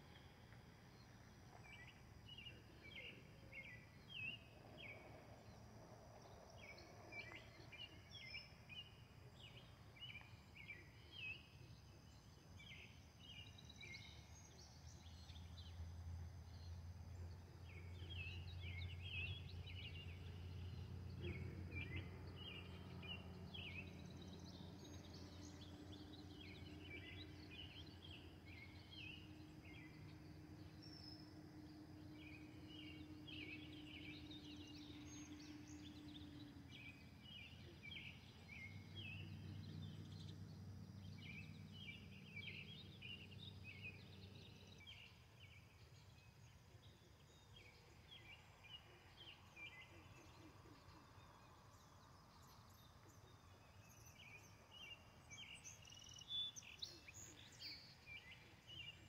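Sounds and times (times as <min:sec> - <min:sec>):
faint low hum: 0:00.0 - 0:59.0
birds chirping: 0:16.5 - 0:59.0.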